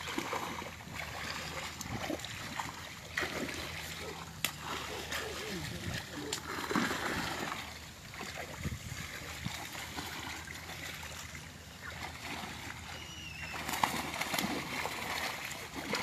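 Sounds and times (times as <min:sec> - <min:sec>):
splashing of wading in pond water: 0:00.0 - 0:16.0
faint high chirp: 0:01.1 - 0:01.8, 0:12.8 - 0:13.9.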